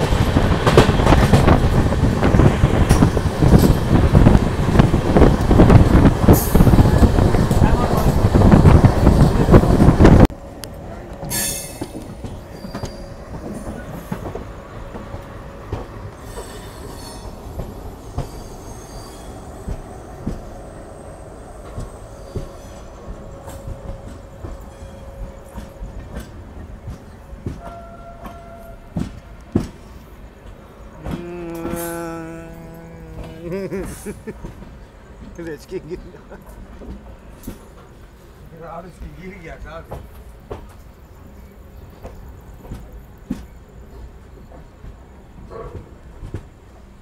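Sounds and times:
train wheels squealing: 11.3s - 14.2s, 16.2s - 19.8s, 21.0s - 25.8s.

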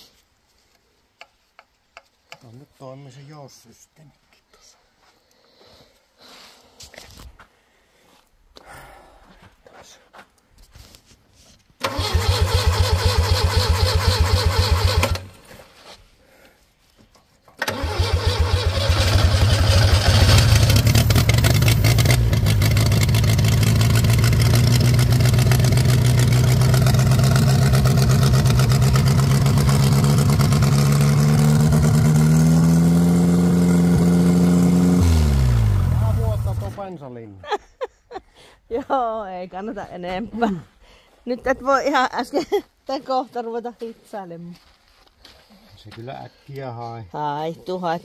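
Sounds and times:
truck engine cranking on starter: 11.8s - 15.3s, 17.6s - 32.8s.

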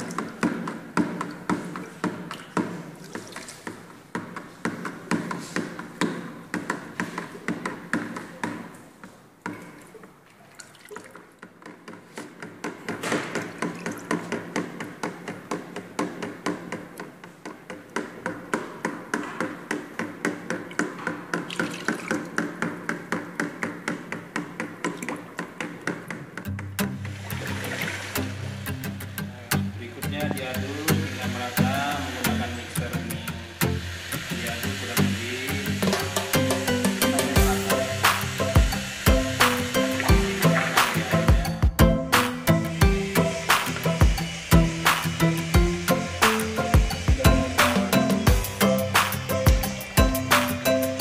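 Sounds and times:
liquid sloshing: 1.7s - 4.0s, 9.8s - 11.5s, 21.4s - 22.4s, 27.1s - 28.6s.

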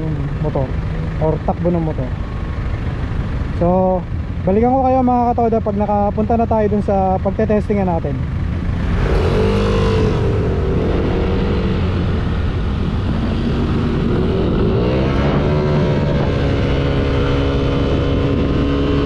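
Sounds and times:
scooter engine accelerating: 8.5s - 19.0s.

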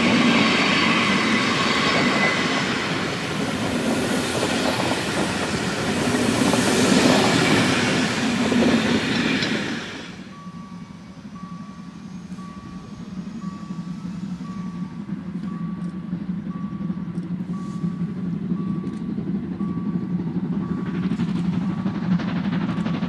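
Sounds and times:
locomotive exhaust beats and hiss: 0.0s - 23.0s
steam train rumble: 0.0s - 23.0s
electronic warning beep: 10.3s - 21.0s.

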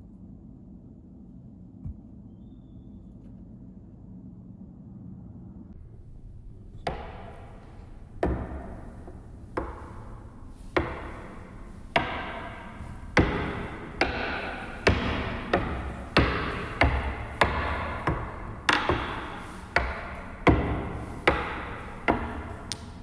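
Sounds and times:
axe chopping wood with echo: 13.2s - 23.0s.

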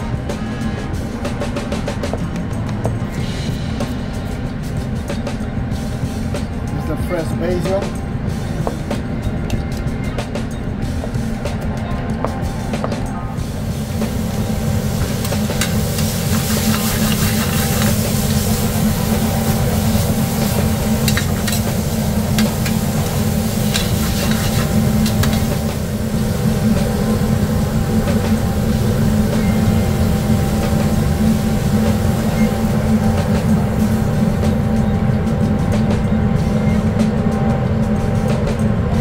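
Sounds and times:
steady low hum: 0.0s - 39.0s
shrimp and vegetables sizzling in pan: 13.4s - 34.7s.

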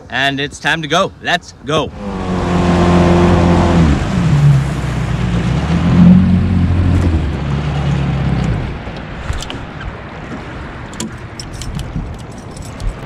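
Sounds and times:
water noise: 1.2s - 13.0s
outboard motor running: 1.9s - 9.6s.

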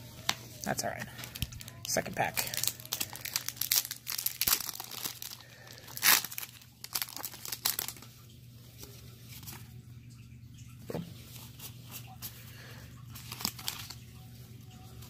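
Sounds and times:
foil wrapper tearing and crinkling: 0.6s - 8.1s, 13.1s - 14.0s.

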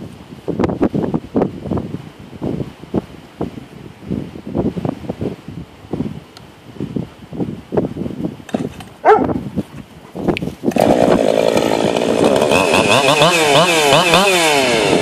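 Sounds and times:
faint gusty noises: 0.0s - 15.0s
chainsaw at full throttle: 10.6s - 15.0s.

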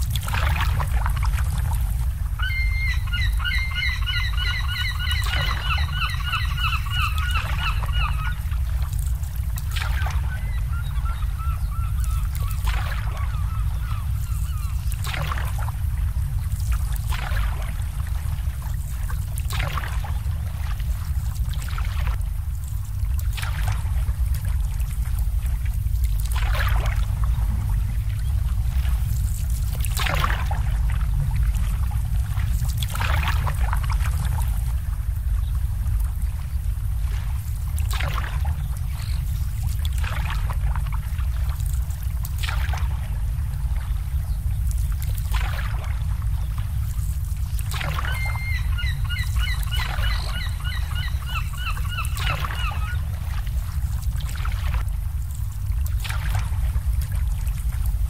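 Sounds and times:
steady low rumble: 0.0s - 58.0s
water lapping and splashing: 0.0s - 58.0s
waterbird honking: 2.4s - 8.6s, 10.1s - 14.8s, 47.8s - 53.2s.

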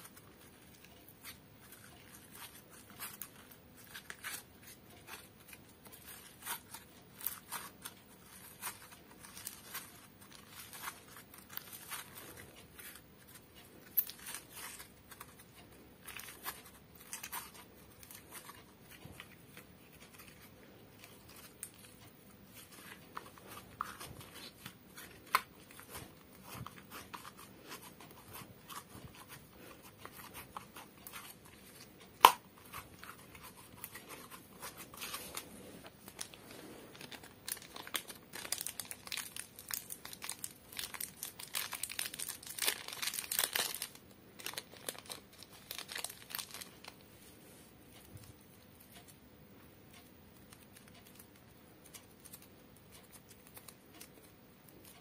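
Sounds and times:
slime crackling and popping: 36.1s - 47.0s.

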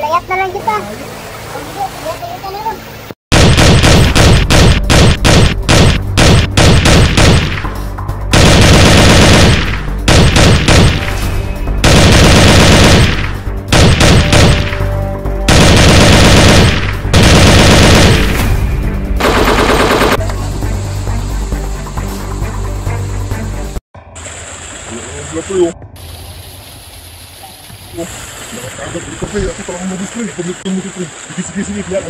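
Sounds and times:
automatic gunfire: 3.3s - 7.6s, 8.3s - 11.0s, 11.8s - 14.8s, 15.5s - 18.4s, 19.2s - 20.2s.

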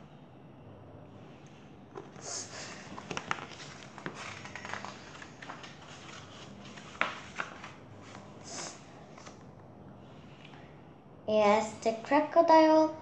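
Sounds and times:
book pages riffling: 1.9s - 9.4s.

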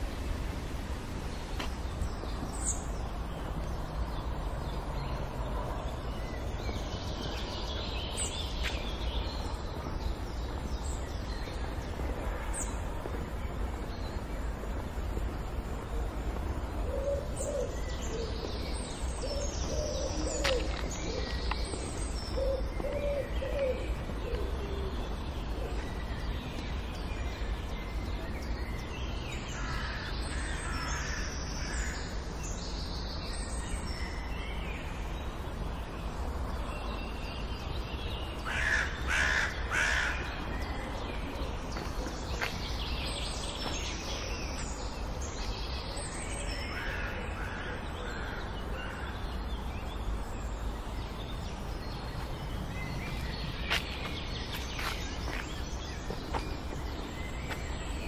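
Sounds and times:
small birds chirping: 0.0s - 58.0s
crow cawing: 38.5s - 40.2s.

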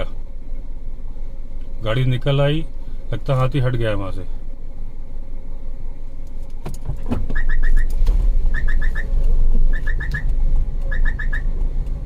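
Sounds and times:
vehicle engine and tyres rumbling: 0.0s - 12.0s
oncoming car passing: 7.3s - 12.0s.

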